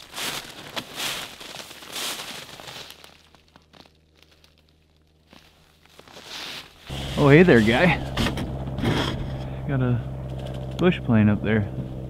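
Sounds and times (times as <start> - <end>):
brushing through dry twigs: 0.0 - 8.2
boots crunching in snow: 0.0 - 9.5.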